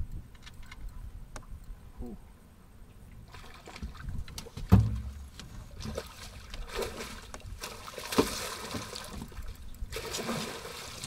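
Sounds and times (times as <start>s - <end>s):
water splashing beside boat: 3.2s - 11.0s
knocks on metal boat: 4.6s - 5.4s.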